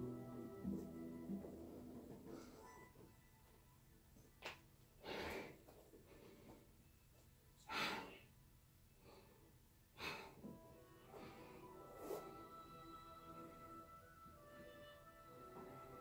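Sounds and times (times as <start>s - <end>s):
soft background music: 0.0s - 4.2s, 10.4s - 16.0s.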